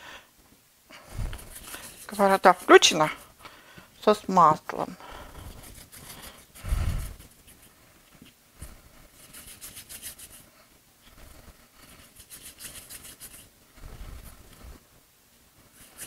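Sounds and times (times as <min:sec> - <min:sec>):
hands rubbing and scraping dough: 0:01.1 - 0:03.4, 0:05.0 - 0:14.8, 0:15.6 - 0:16.0.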